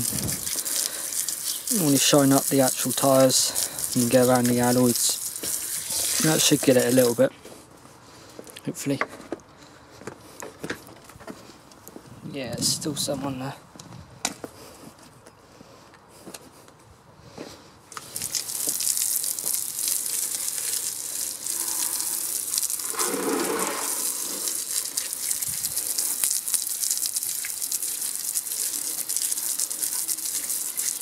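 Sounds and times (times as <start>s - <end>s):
hose spray hissing on tyre: 0.0s - 7.3s, 17.9s - 31.0s.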